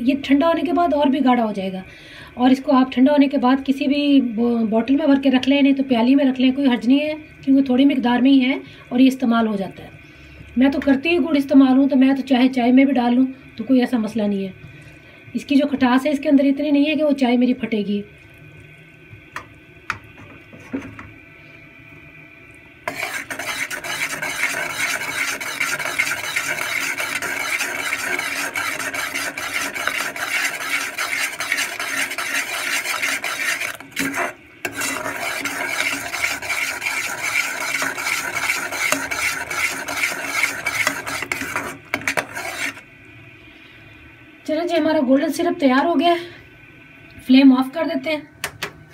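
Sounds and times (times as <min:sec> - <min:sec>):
syrup sizzling: 0:22.8 - 0:42.9
spoon scraping a saucepan: 0:22.9 - 0:42.8.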